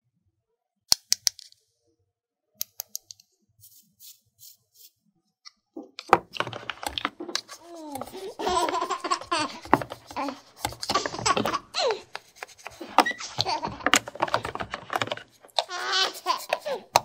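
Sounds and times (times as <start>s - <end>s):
plastic toy pieces clicking: 6.0s - 17.0s
baby doll giggling and babbling: 7.5s - 12.2s, 12.8s - 17.0s.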